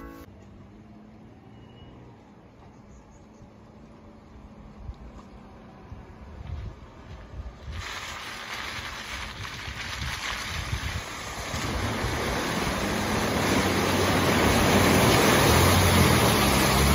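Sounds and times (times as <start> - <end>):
vehicle engine hum: 0.0 - 7.6, 11.1 - 16.9
tyres splashing through water: 7.6 - 16.9.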